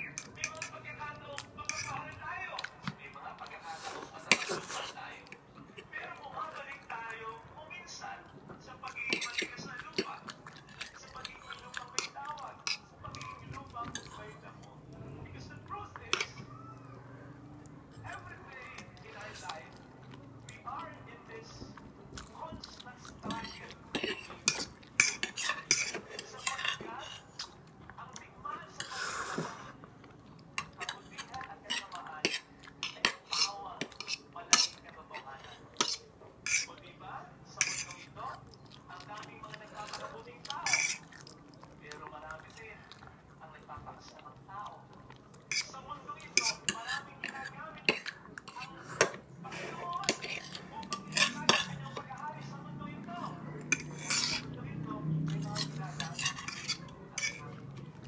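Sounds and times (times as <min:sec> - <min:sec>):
forks clinking on plates: 0:00.1 - 0:00.8, 0:50.0 - 0:52.0, 0:55.4 - 0:57.5.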